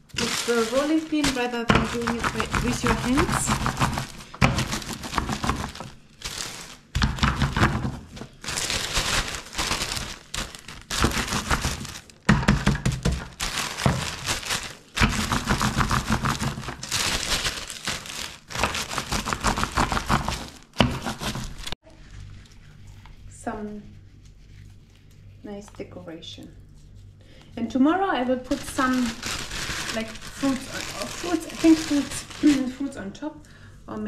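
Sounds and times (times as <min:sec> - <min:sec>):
plastic bag crinkling: 0:00.0 - 0:22.3, 0:28.3 - 0:33.2.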